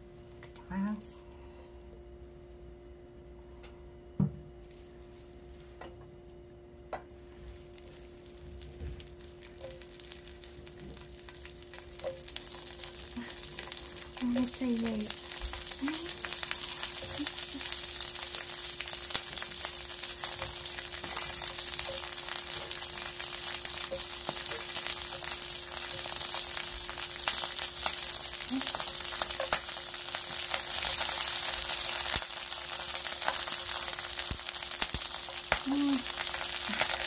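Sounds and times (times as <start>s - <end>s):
fine crackling: 7.2s - 37.0s
tofu sizzling in oil: 7.6s - 37.0s.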